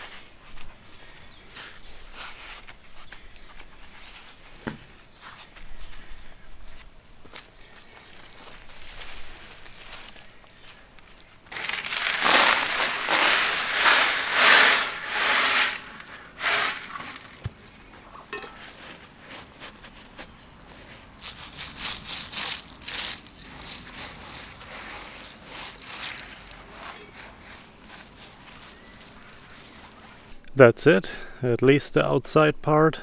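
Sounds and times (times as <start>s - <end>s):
gravel rustling under hand: 7.6s - 30.3s
gravel tipped out of bucket: 11.5s - 17.6s.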